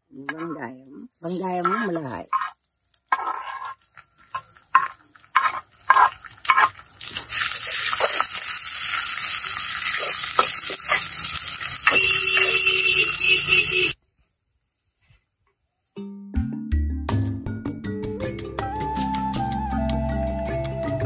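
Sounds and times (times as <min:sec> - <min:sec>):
onions sizzling in hot oil: 0:01.2 - 0:14.0
wooden spoon scraping and knocking: 0:01.5 - 0:06.8.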